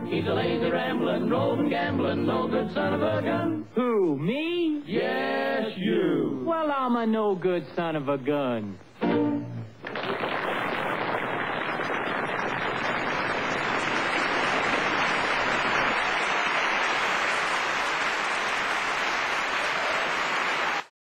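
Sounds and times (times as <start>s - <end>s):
audience applauding: 9.8s - 20.9s.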